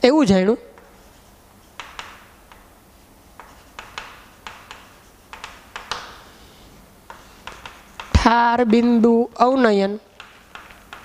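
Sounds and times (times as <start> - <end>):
chalk tapping on chalkboard: 0.8 - 2.7, 3.3 - 9.1, 10.1 - 11.0.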